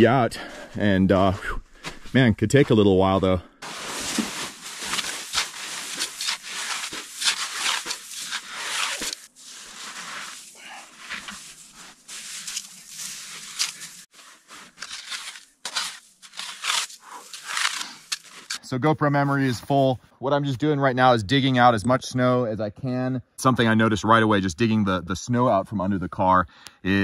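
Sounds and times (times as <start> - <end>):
hands scooping packed snow: 3.6 - 18.6.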